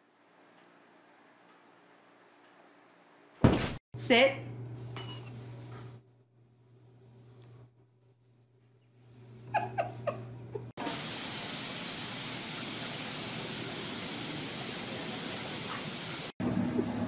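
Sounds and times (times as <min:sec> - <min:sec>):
water spraying hiss: 0:10.8 - 0:16.3.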